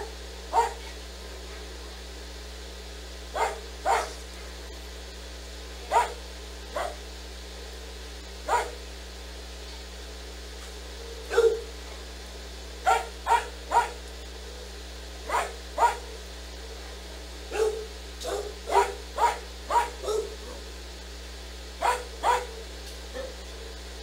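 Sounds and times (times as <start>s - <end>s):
dog barking: 0.5s - 1.0s, 3.3s - 4.2s, 5.9s - 7.0s, 8.4s - 8.8s, 11.2s - 11.7s, 12.8s - 14.0s, 15.2s - 16.2s, 17.5s - 20.6s, 21.8s - 23.5s.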